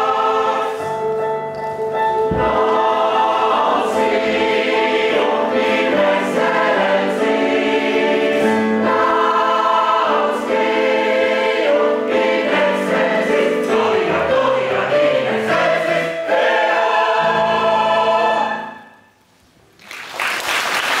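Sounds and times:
mixed choir singing: 0:00.0 - 0:01.1, 0:02.2 - 0:19.0
piano accompaniment: 0:00.0 - 0:19.2
applause: 0:19.8 - 0:21.0.

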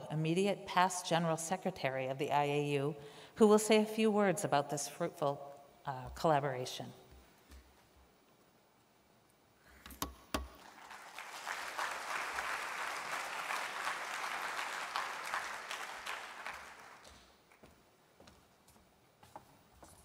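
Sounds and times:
audience applause in a large hall: 0:10.4 - 0:17.7.

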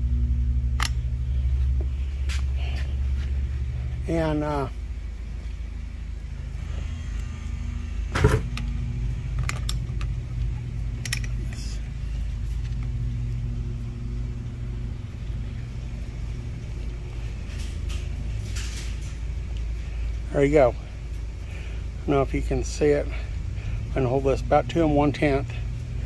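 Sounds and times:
steady low hum: 0:00.0 - 0:26.0
light metal clicks: 0:11.0 - 0:11.5.

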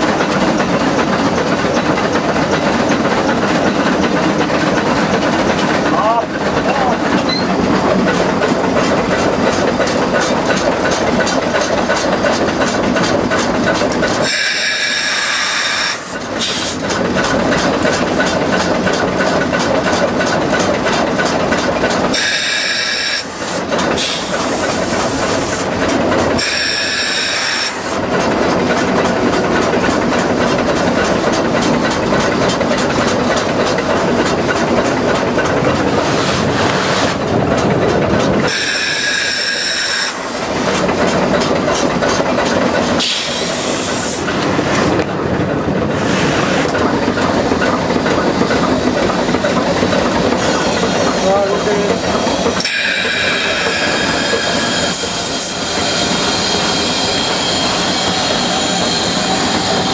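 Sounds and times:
steam locomotive chatter: 0:00.0 - 0:59.9
high steam hiss: 0:14.0 - 0:17.0, 0:22.1 - 0:25.8, 0:26.4 - 0:28.0, 0:43.0 - 0:44.4, 0:50.4 - 0:59.9.

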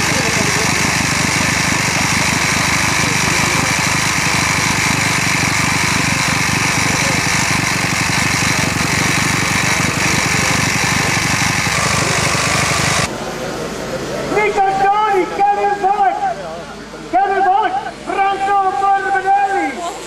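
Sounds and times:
two-stroke minibike engines: 0:00.0 - 0:13.4.

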